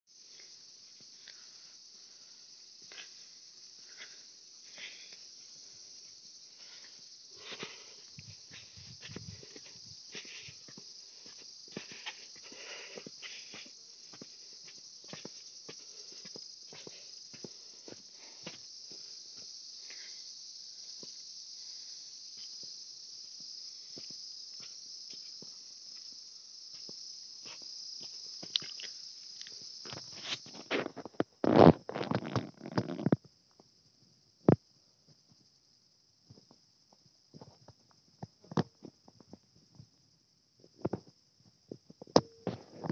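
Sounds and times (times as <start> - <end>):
high-pitched insect drone: 0.1 - 33.3
footsteps on dirt track: 6.6 - 19.5.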